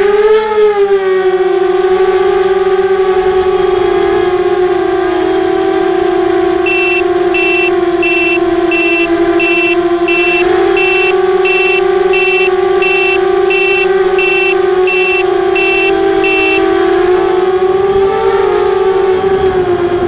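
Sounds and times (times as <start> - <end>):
high electronic beeper: 6.7 - 16.6
drone motors and propellers whining: 6.7 - 20.0.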